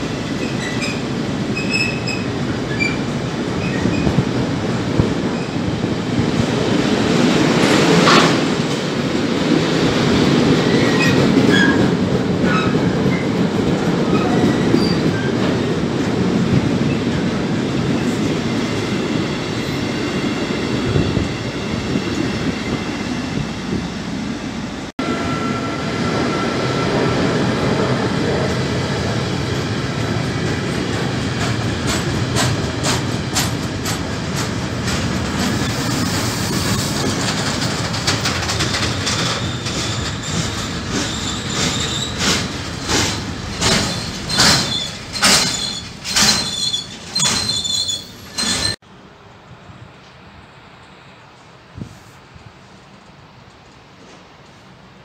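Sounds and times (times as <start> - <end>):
train wheels rumbling on rail: 0.0 - 55.0
high wheel squeal: 0.1 - 3.0, 39.2 - 48.8
wheels clacking over rail joints: 28.3 - 48.8.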